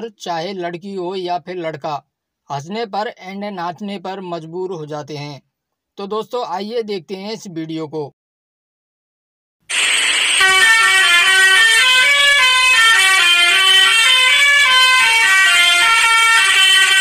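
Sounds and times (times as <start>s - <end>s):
short rush of noise: 9.7s - 11.4s
truck musical horn: 10.3s - 17.0s.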